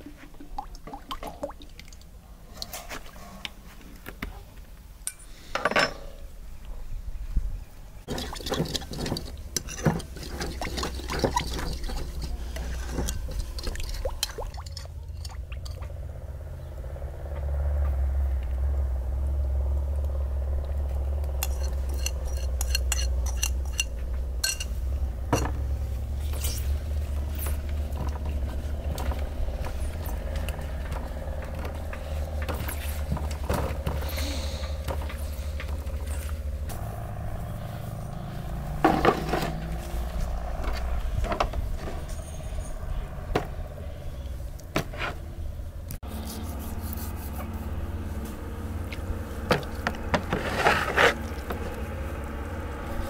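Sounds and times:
metal spoon scraping ceramic bowl: 0:08.1 - 0:15.8, 0:21.4 - 0:24.8
steady low rumble: 0:12.2 - 0:53.0.

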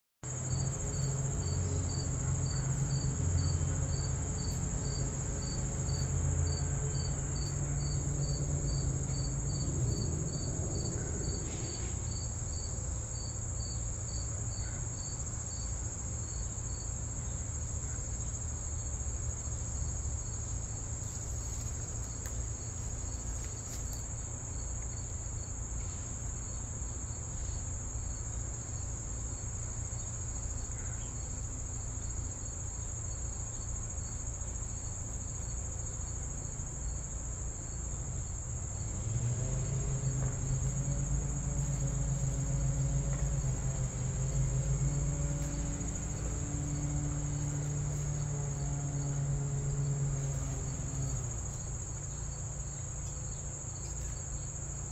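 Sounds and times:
insect chirping: 0:00.3 - 0:54.9
insects high-pitched trill: 0:00.3 - 0:54.9.

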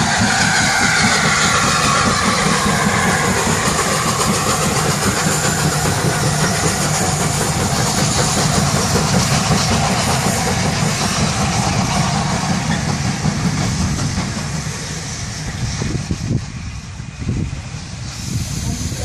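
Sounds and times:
steam locomotive exhaust: 0:00.0 - 0:19.0
train wheels on rails: 0:00.0 - 0:19.0.

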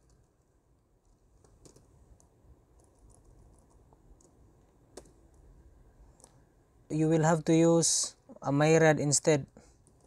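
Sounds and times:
keyboard key clicks: 0:01.4 - 0:05.4.

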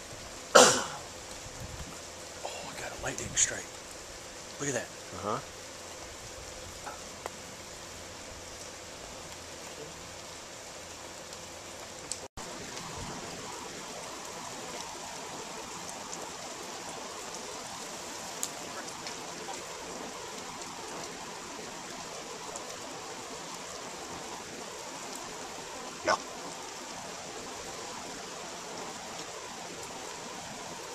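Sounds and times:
steady rain falling: 0:00.0 - 0:30.9
faint ticks: 0:18.4 - 0:19.6.

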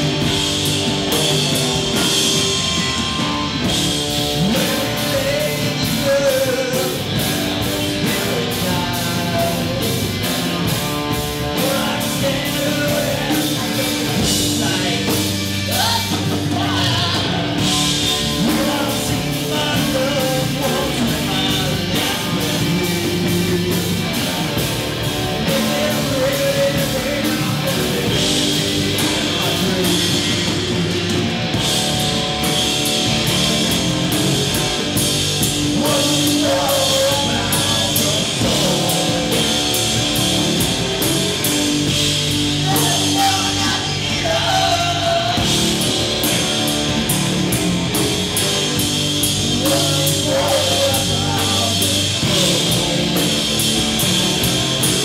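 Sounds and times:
bass guitar: 0:00.0 - 0:55.0
drum beat: 0:00.0 - 0:55.0
person singing: 0:04.4 - 0:10.7, 0:11.3 - 0:31.3, 0:35.6 - 0:40.0, 0:42.6 - 0:45.8, 0:49.4 - 0:54.1.

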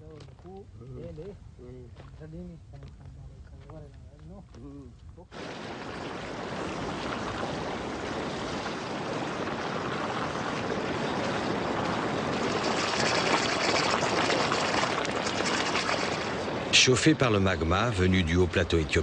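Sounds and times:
hot springs bubbling and gushing: 0:05.3 - 0:19.0.

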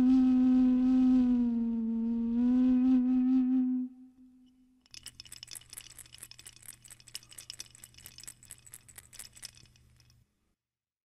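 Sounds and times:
rattles shaking with dry clicks: 0:04.9 - 0:10.3.

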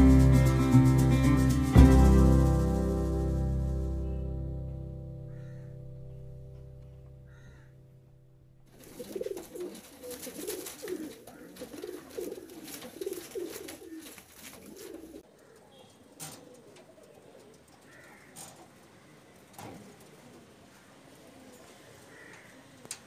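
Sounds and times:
pigeons cooing: 0:05.3 - 0:05.7, 0:07.3 - 0:07.7, 0:08.7 - 0:23.0.

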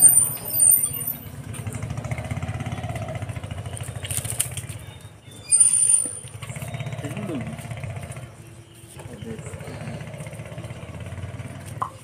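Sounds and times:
high-pitched squeals: 0:00.0 - 0:01.4, 0:05.3 - 0:07.1
motorcycle engine idling: 0:00.0 - 0:12.0.

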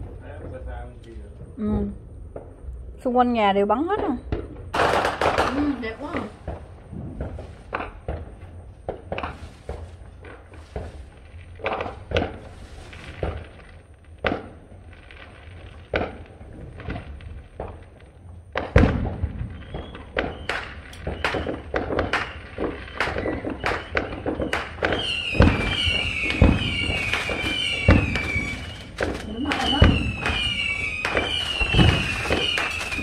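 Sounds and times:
fireworks bangs and crackling: 0:00.0 - 0:33.0
wavering high whistle: 0:19.6 - 0:21.6, 0:23.0 - 0:33.0.

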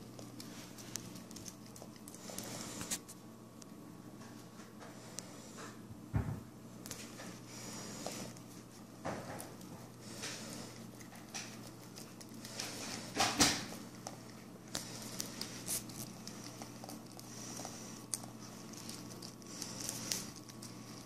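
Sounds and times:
puppy chewing and licking: 0:00.0 - 0:03.2, 0:06.8 - 0:21.0.

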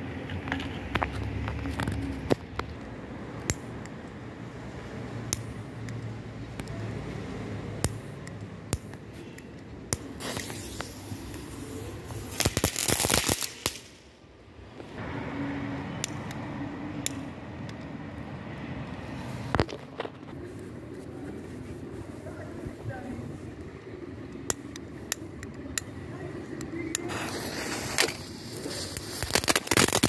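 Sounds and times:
firecracker crackling pops: 0:09.9 - 0:14.2, 0:26.6 - 0:30.0
firecracker fuse fizzing: 0:10.0 - 0:14.0, 0:27.0 - 0:30.0.

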